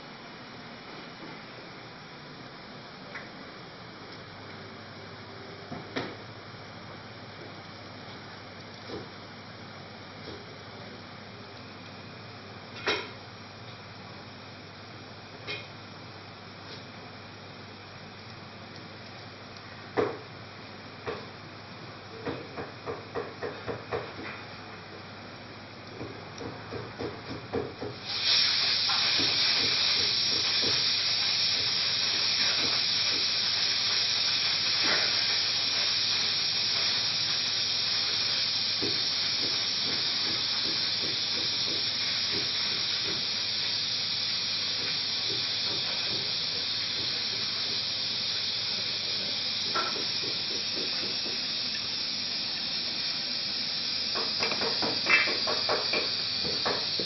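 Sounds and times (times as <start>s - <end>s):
loud steady hiss: 0.0s - 57.0s.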